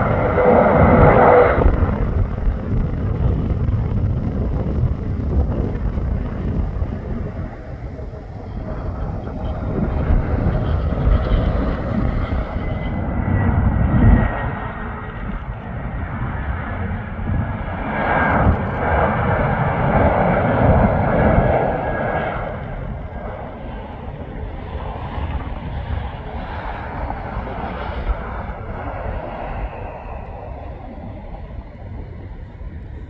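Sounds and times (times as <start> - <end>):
jet airliner passing: 0.0 - 33.0.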